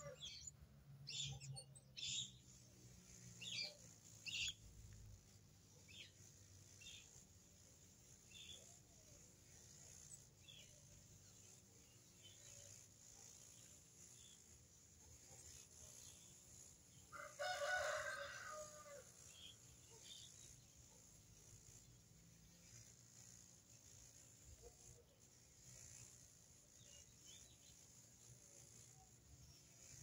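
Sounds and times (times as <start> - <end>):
faint high chirps: 0.0 - 2.5
rooster crowing: 17.1 - 19.1.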